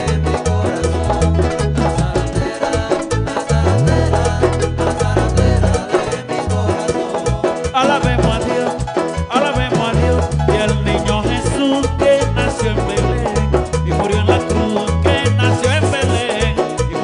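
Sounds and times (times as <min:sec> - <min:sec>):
latin dance band playing: 0:00.0 - 0:17.0
person singing: 0:00.0 - 0:17.0.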